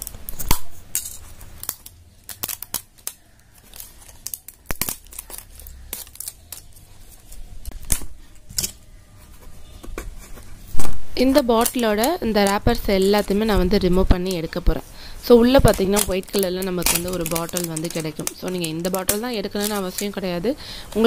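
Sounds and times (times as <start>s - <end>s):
label tearing off plastic bottle: 15.6s - 20.1s.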